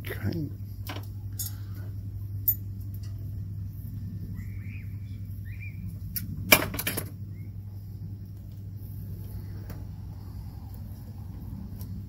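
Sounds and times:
steady low hum: 0.0 - 12.0
stiff wires clicking and rustling: 0.3 - 3.5.

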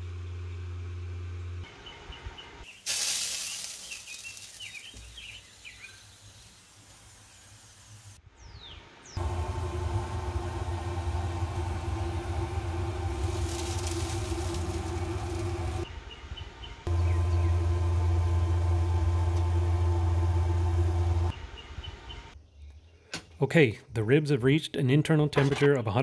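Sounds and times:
mechanical hum with deep drone: 0.0 - 2.6, 9.0 - 22.7
sudden hiss: 2.8 - 8.2, 9.2 - 15.8
birds chirping: 3.5 - 7.6, 8.4 - 23.4.

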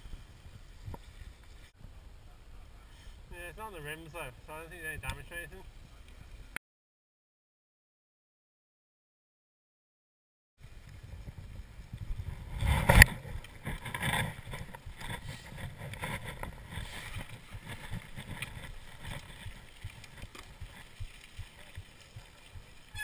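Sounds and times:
bike tyre rumble: 0.0 - 6.6, 10.6 - 23.0
wind on microphone: 10.6 - 23.0
bike knocks and rattles: 11.3 - 23.0.

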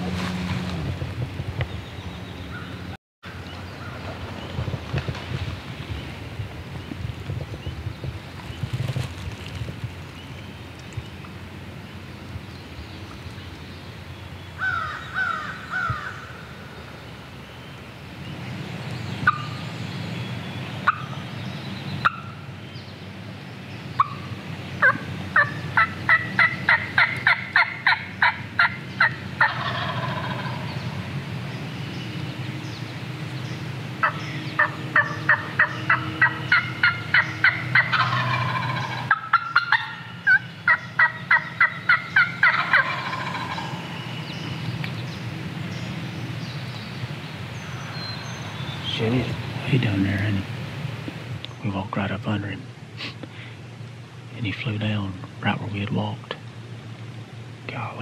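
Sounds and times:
wild turkey calling: 14.6 - 16.9, 19.2 - 19.6, 20.8 - 21.3, 22.0 - 22.5, 24.0 - 31.1, 34.0 - 45.2
turkey gobbling: 19.2 - 19.5, 20.8 - 21.1, 22.0 - 22.4, 24.0 - 24.2, 24.8 - 30.7, 34.0 - 44.0.

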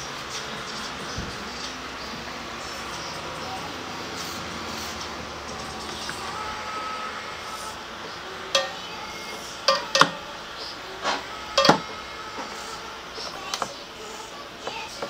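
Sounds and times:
low workshop background: 0.0 - 15.0.

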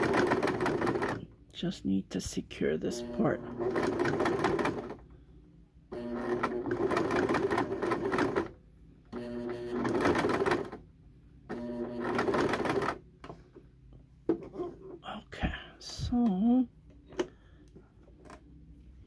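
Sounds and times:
sewing machine stitching: 0.0 - 1.4, 2.9 - 5.0, 5.9 - 10.8, 11.5 - 13.0.

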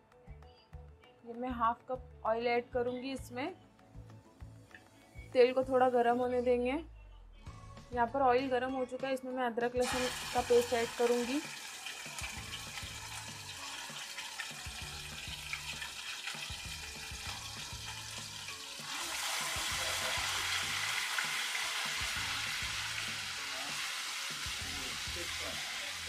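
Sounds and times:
paste sizzling in hot oil: 9.8 - 26.0.

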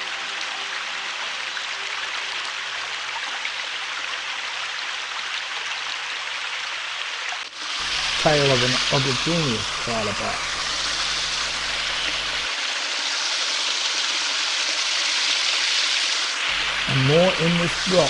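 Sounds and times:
stream running over rocks: 0.0 - 18.0.

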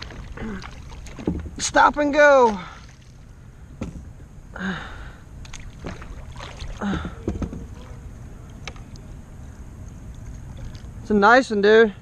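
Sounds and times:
low rumble of wind and water: 0.0 - 12.0
fishing rod and paddle knocking hull: 0.9 - 1.7, 5.4 - 8.0.

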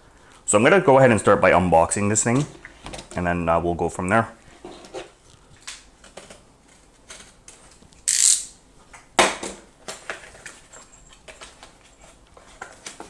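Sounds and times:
cardboard seal scraping hiss: 8.0 - 8.5.

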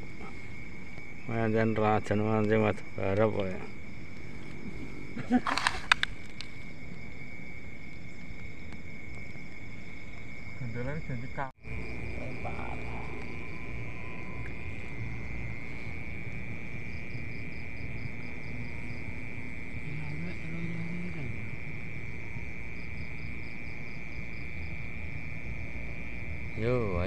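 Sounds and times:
crickets trilling: 0.0 - 27.0
low rumble: 11.6 - 23.4.

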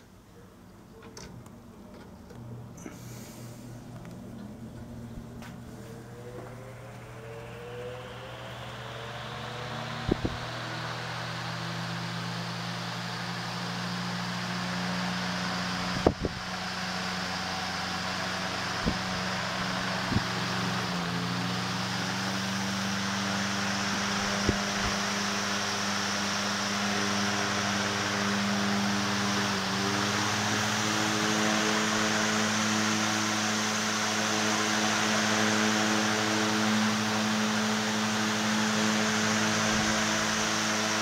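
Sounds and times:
electric fan motor humming: 0.0 - 41.0
fan clicks: 15.8 - 27.4.

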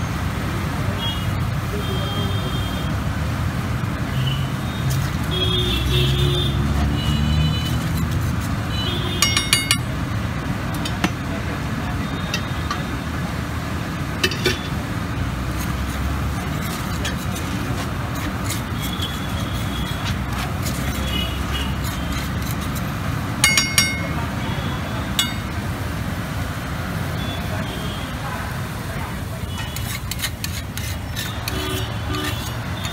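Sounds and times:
street traffic noise: 0.0 - 32.9
metal spatula scraping on griddle: 7.0 - 9.9, 14.2 - 24.2, 29.4 - 32.9
sharp spatula taps: 8.9 - 10.0, 18.2 - 24.3, 25.1 - 25.6.

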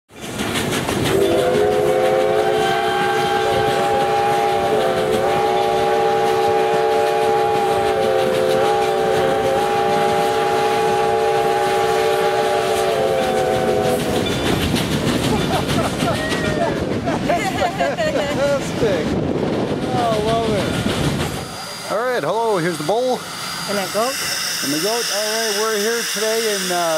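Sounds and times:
steam locomotive chime whistle: 1.1 - 14.4, 21.4 - 26.9.

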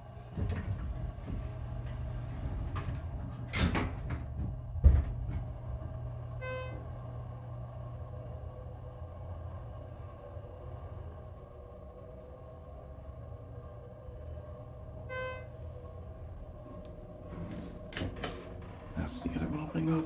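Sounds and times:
elevator low hum: 0.0 - 20.0
elevator doors knocking shut: 0.3 - 5.6.

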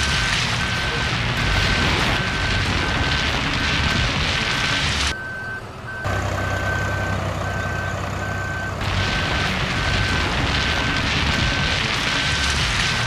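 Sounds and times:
reversing beeper: 5.1 - 12.7.

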